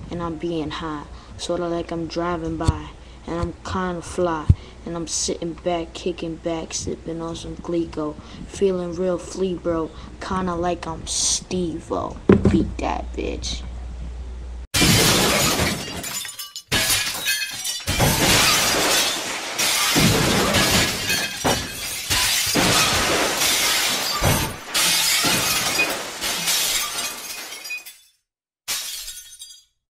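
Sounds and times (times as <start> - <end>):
loud shattering crashing: 14.8 - 28.1.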